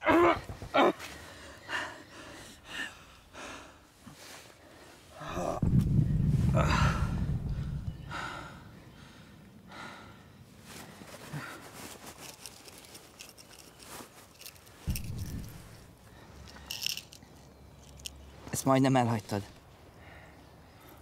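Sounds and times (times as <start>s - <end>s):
heavy breathing: 6.4s - 11.7s
rustling movement: 10.6s - 18.6s.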